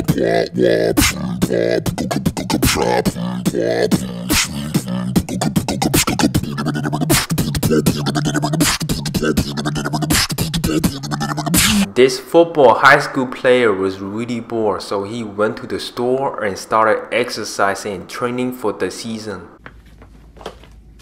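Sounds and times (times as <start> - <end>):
man beatboxing with deep voice: 0.0 - 12.1.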